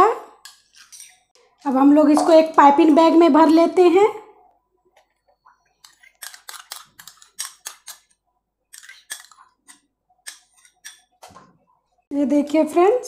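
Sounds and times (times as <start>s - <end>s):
metal spoon scraping glass bowl: 0.4s - 1.3s, 5.8s - 8.1s, 8.7s - 9.6s.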